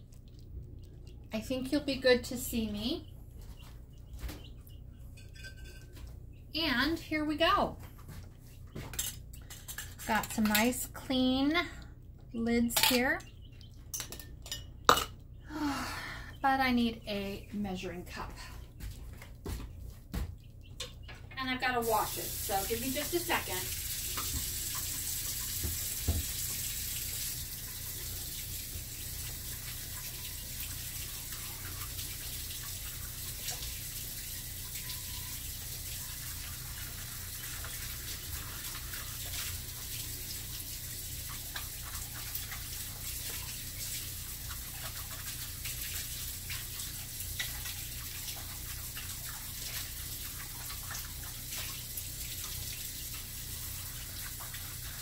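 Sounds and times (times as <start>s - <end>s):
tap water running into sink: 21.4s - 55.0s.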